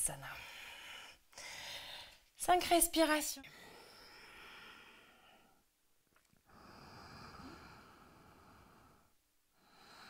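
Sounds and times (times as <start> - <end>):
slow hissing breathing: 3.5 - 5.7, 6.5 - 10.0.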